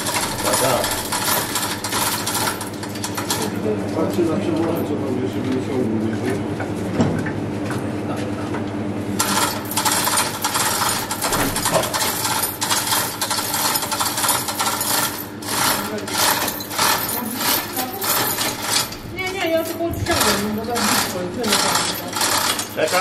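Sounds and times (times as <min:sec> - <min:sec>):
chain hoist clicking and rattling: 0:00.0 - 0:03.6, 0:09.2 - 0:23.0.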